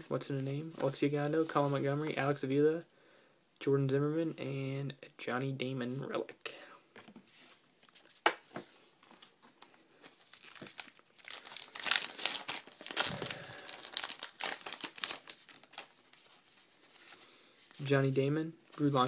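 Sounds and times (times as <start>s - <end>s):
card pack wrapper tearing: 10.3s - 16.1s.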